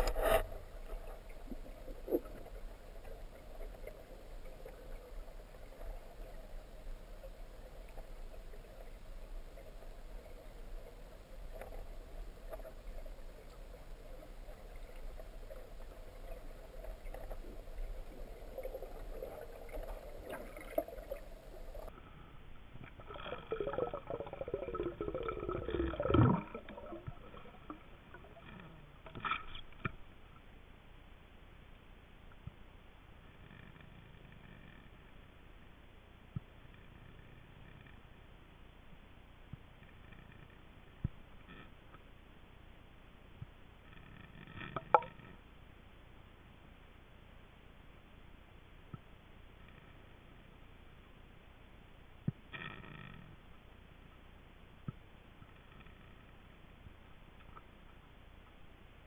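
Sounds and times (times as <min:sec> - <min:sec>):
underwater water wash: 0:00.0 - 0:21.9, 0:22.8 - 0:29.9.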